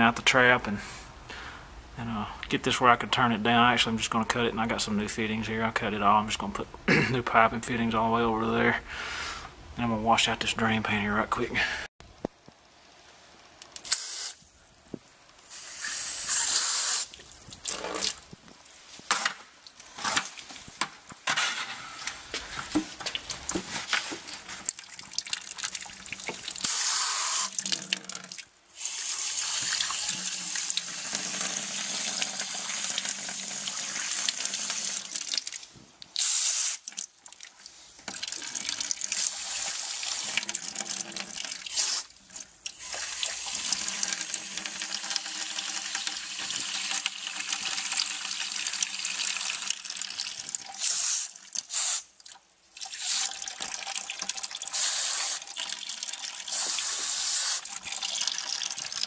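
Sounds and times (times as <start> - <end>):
water pouring into bucket: 24.3 - 59.0.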